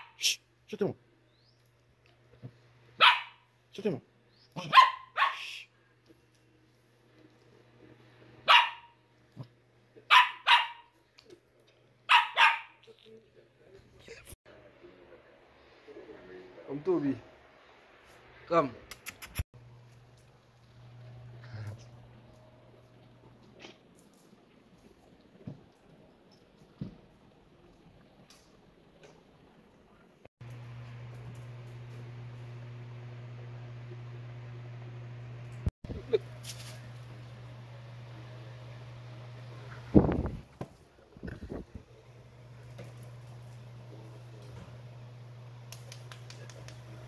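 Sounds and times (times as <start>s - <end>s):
small dog barking: 3.0s - 3.5s, 4.6s - 5.6s, 8.4s - 9.0s, 10.1s - 11.0s, 12.1s - 12.8s.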